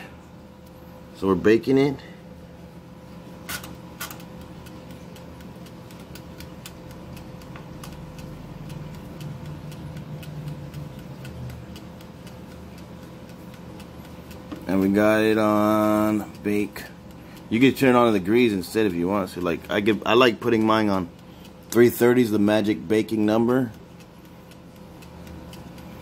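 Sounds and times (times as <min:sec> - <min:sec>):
faint steady hum: 0:00.0 - 0:26.0
wind-up timer ticking: 0:03.5 - 0:26.0.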